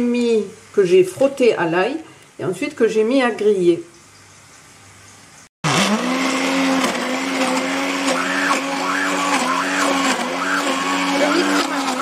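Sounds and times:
immersion blender motor: 0:05.6 - 0:12.0.

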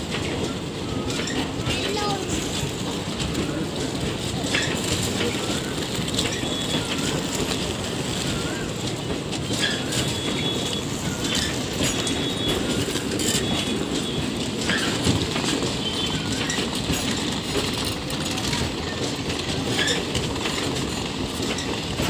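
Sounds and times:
train wheels rumbling on rails: 0:00.0 - 0:22.0
high wheel squeals: 0:04.6 - 0:17.3.

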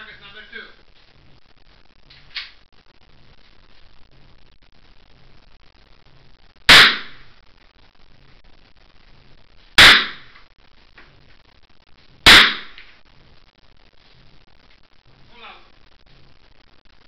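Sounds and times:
rifle shots with echo: 0:09.8 - 0:10.3, 0:12.3 - 0:12.8.

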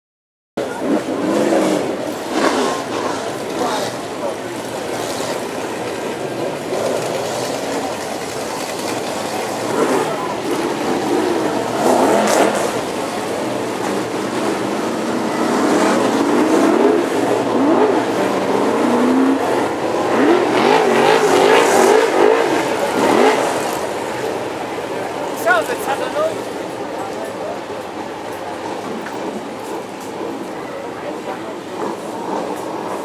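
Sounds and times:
race car engines revving: 0:00.6 - 0:33.0.

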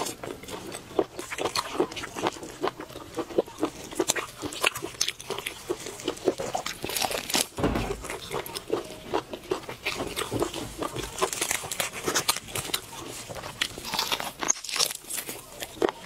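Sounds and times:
person chewing and crunching: 0:00.0 - 0:16.0.

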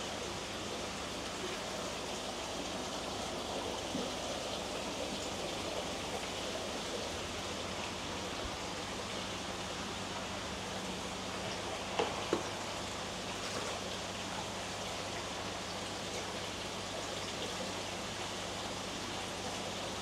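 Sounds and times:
running water: 0:00.0 - 0:20.0.

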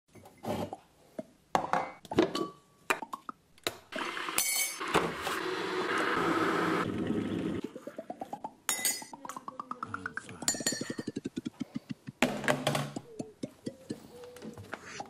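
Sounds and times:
cups and spoon clinking: 0:08.7 - 0:09.2, 0:10.4 - 0:11.1.

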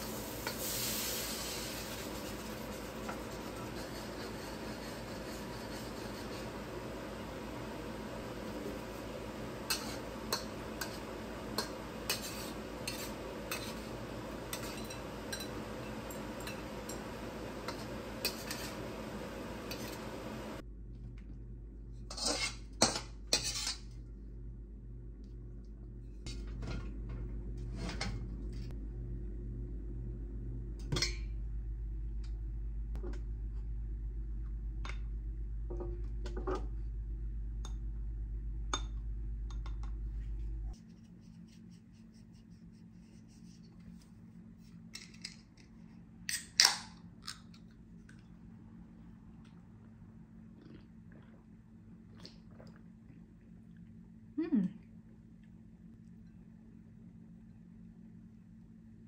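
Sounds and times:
food sizzling in a wok: 0:00.0 - 0:20.6
low steady hum: 0:00.0 - 0:59.0
metal spatula scraping a pan: 0:00.4 - 0:06.7, 0:09.7 - 0:15.6, 0:17.6 - 0:19.0, 0:22.1 - 0:23.9
metal ladle scraping a wok: 0:09.7 - 0:13.9, 0:17.6 - 0:18.9, 0:22.1 - 0:22.6, 0:23.3 - 0:23.8.

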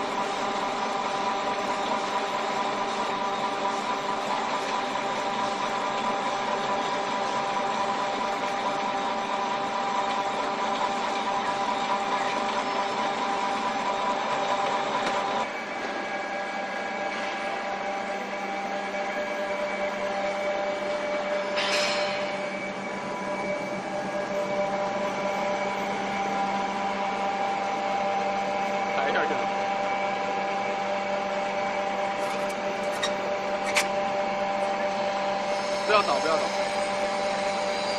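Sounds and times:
processing machines humming: 0:00.0 - 0:37.9.

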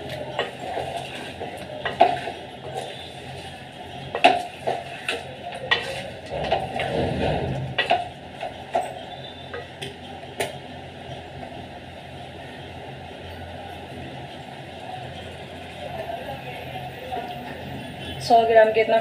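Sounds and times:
wooden spatula scraping metal pot: 0:00.4 - 0:03.6, 0:04.2 - 0:08.2.

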